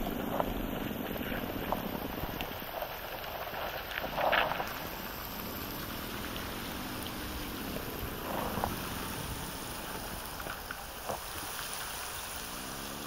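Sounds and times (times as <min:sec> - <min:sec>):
flowing river water: 0:00.0 - 0:13.0.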